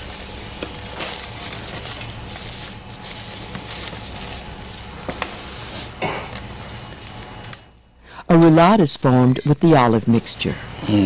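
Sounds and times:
cling film crinkling: 0.0s - 7.8s
steady low hum: 0.0s - 11.0s.

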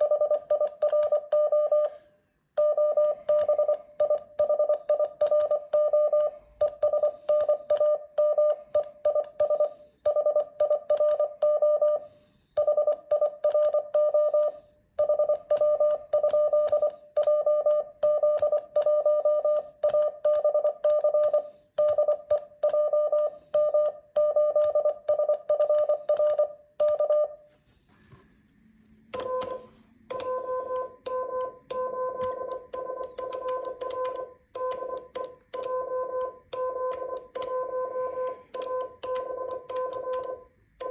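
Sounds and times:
morse code sidetone beeping: 0.0s - 2.0s, 2.6s - 27.4s, 29.1s - 40.9s
lower-pitched morse code tone: 2.6s - 12.0s, 29.2s - 40.9s.

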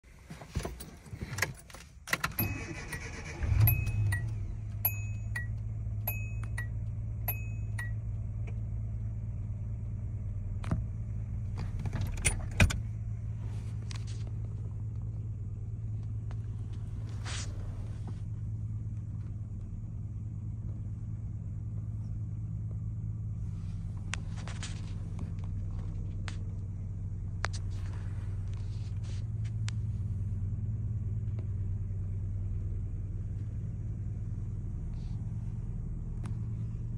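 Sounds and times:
car engine idling: 0.1s - 36.9s
clicks: 1.4s - 6.8s
starter cranking: 2.1s - 4.5s.

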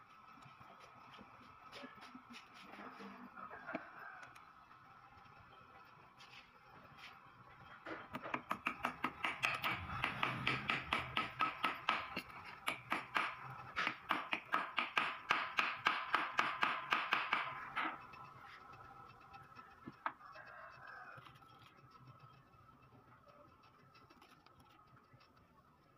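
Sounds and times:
hammer tapping metal: 8.2s - 18.1s.

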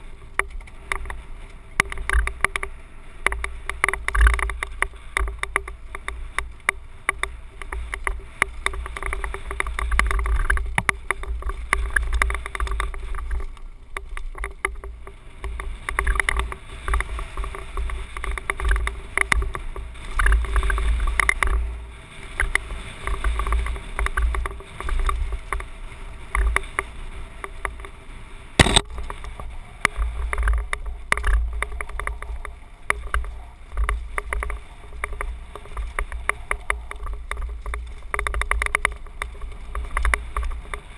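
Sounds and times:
bike rattling over stones: 0.0s - 40.9s
wind buffeting helmet camera: 0.0s - 40.9s
sharp knock: 28.6s - 28.9s.

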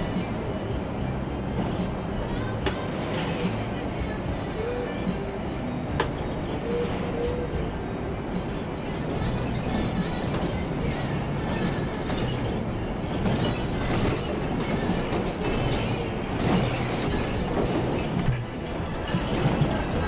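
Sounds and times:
coach engine and road drone: 0.0s - 20.0s
interior rattles and clicks: 8.4s - 20.0s.

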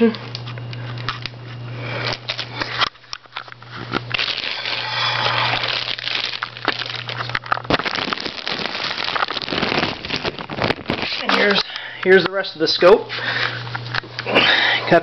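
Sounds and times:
low steady hum: 0.0s - 15.0s
plastic wrapping crinkling: 2.0s - 12.2s.

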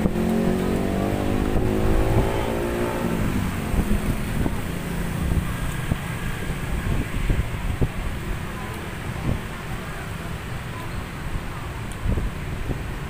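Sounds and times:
vehicle engine passing: 0.0s - 7.0s
low traffic rumble: 0.0s - 13.0s.

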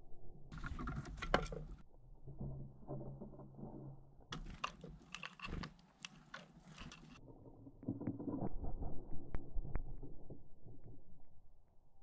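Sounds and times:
bird pecking seeds on wooden tray: 3.0s - 8.3s
dull rustle with sharp ticks: 4.4s - 7.2s.

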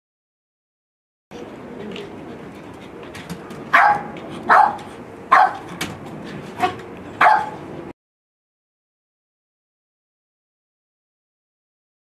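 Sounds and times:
small dog barking sharply: 3.7s - 5.8s, 6.6s - 7.6s.

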